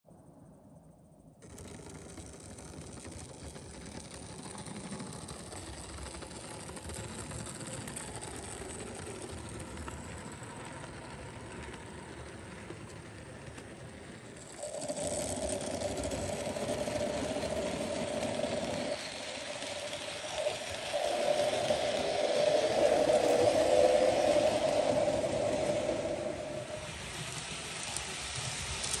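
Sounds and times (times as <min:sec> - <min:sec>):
model train motor whirring: 0:01.4 - 0:29.0
wheels rattling over rails: 0:01.4 - 0:29.0
steady hum: 0:14.5 - 0:29.0.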